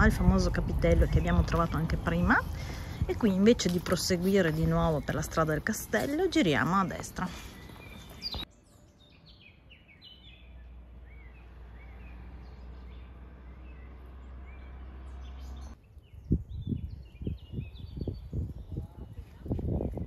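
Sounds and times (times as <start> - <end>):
steady low rumble: 0.0 - 5.6
songbirds chirping: 0.0 - 20.0.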